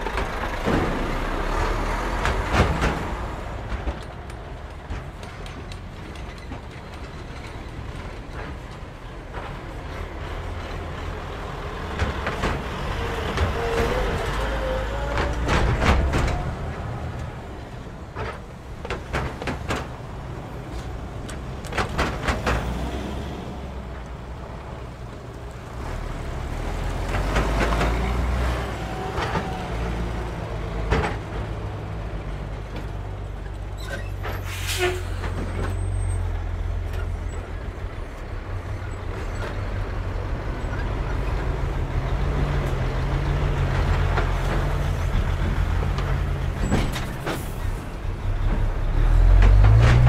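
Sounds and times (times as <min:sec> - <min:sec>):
tyres knocking over rails: 0:00.0 - 0:23.2, 0:26.4 - 0:34.3
truck diesel rumble: 0:00.0 - 0:50.0
air brakes hissing: 0:34.3 - 0:35.4.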